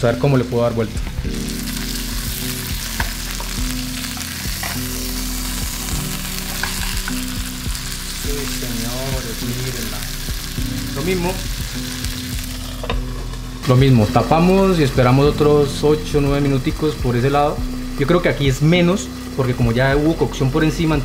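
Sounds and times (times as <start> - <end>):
burger patty sizzling in pan: 0.0 - 21.0
spatula scraping pan: 2.9 - 5.1.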